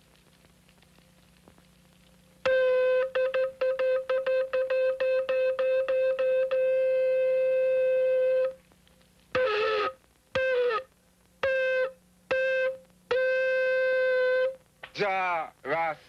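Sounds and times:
hand-held horn blasts: 9.4 - 14.6.

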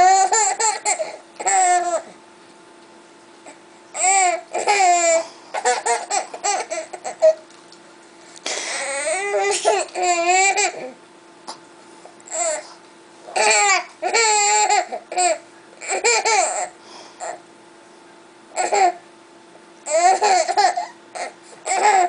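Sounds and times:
baby laughing and babbling: 0.0 - 2.2, 3.4 - 7.4, 8.6 - 11.0, 12.3 - 12.7, 13.3 - 17.4, 18.6 - 19.0, 19.9 - 22.0.

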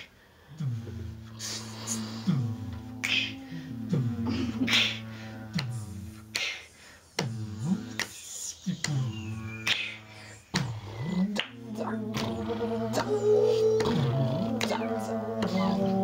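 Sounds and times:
low swooping drone: 0.6 - 6.4, 7.2 - 16.0
finger snaps: 3.0 - 3.5, 5.6 - 13.2, 13.8 - 15.6.

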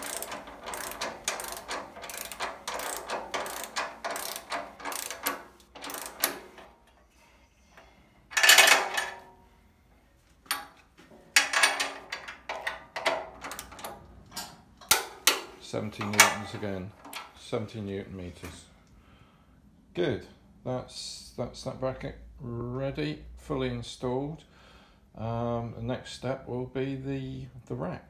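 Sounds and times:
ratchet wrench clicking: 0.0 - 7.0, 8.3 - 9.0, 11.4 - 13.9.

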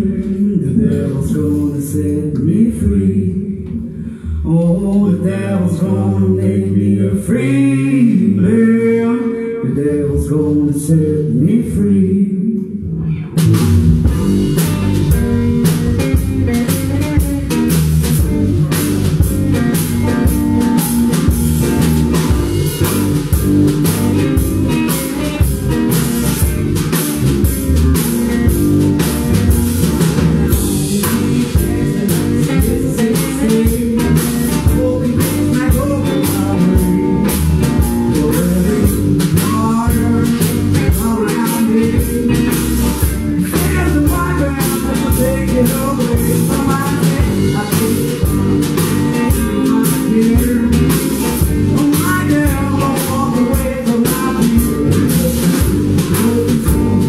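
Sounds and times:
electric guitar: 12.4 - 57.0
drum kit beat: 13.3 - 57.0.

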